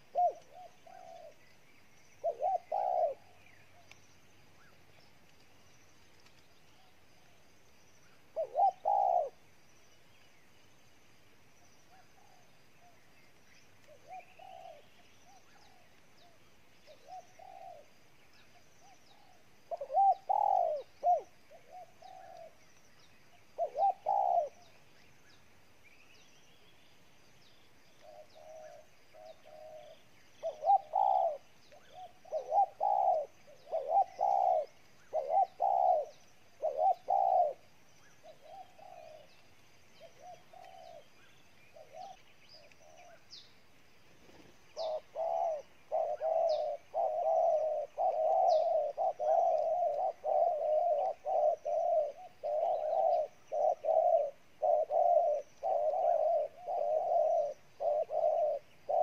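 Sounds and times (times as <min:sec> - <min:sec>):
dove cooing: 0:00.0 - 0:01.5, 0:02.2 - 0:04.0, 0:08.2 - 0:09.5, 0:13.8 - 0:22.6, 0:23.5 - 0:24.8, 0:28.0 - 0:43.3, 0:44.2 - 0:59.0.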